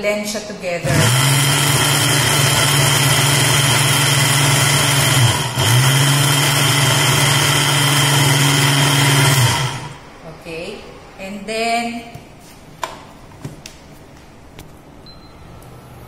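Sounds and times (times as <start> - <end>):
blender motor running: 0.8 - 10.0.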